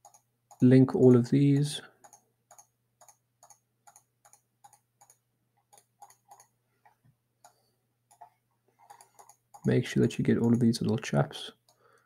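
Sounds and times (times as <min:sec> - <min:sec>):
computer mouse clicks: 0:00.0 - 0:00.7, 0:01.6 - 0:06.5, 0:07.4 - 0:09.8.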